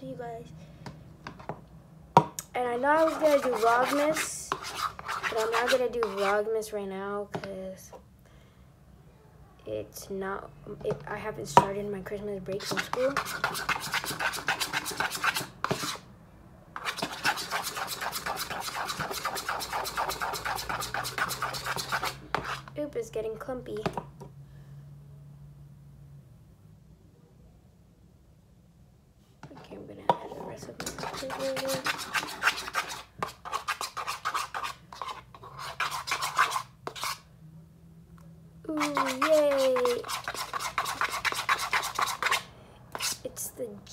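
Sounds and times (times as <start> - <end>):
spoon scraping plastic bowl: 2.7 - 6.4, 12.5 - 16.0, 16.8 - 22.7, 29.4 - 37.2, 38.7 - 43.3.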